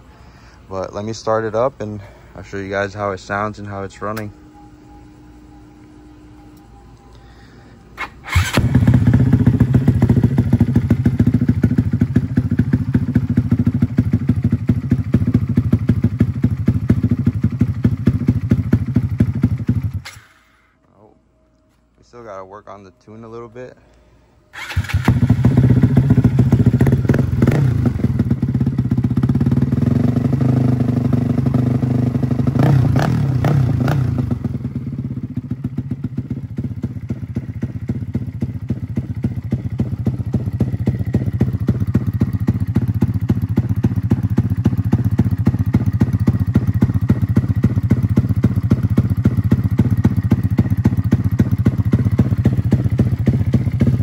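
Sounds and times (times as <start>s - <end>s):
motorcycle engine running: 8.2s - 20.1s, 24.6s - 54.0s.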